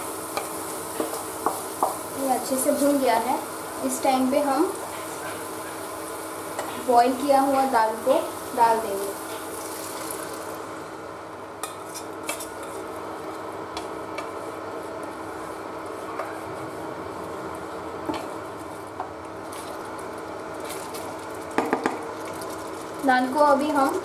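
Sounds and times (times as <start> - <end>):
food sizzling: 0.0 - 24.0.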